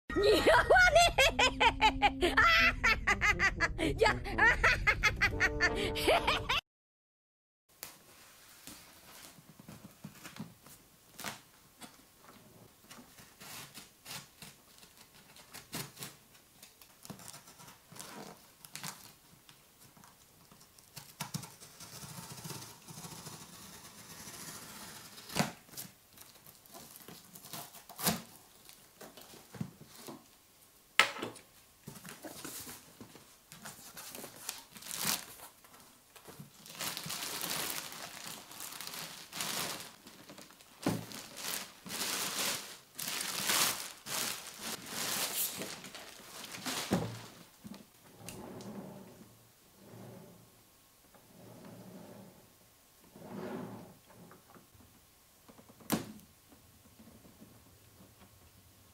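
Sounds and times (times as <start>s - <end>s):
packing tape peeled and torn: 13.2s - 19.2s, 20.8s - 28.9s, 33.6s - 35.5s, 36.2s - 47.0s
plastic wrapping crinkling: 25.7s - 30.3s, 31.9s - 47.9s.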